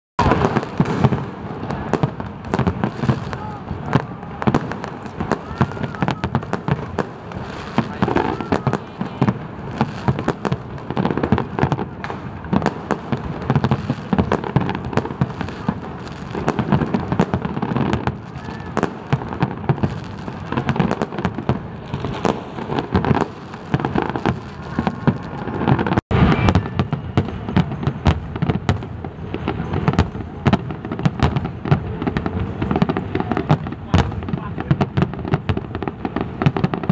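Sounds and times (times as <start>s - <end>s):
fireworks bangs: 0.2s - 36.9s.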